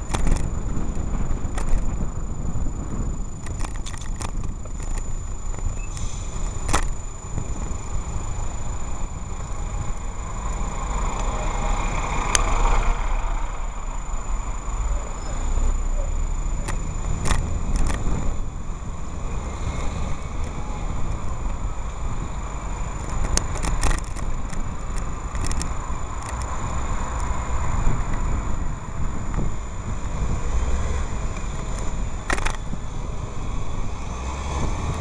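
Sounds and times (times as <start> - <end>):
wind on microphone: 0.0 - 14.5, 16.3 - 35.0
faint high whine: 0.0 - 23.1
traffic rumble: 0.0 - 35.0
clicks and rattles: 3.4 - 6.1, 16.6 - 18.0, 23.0 - 26.5, 32.3 - 32.6.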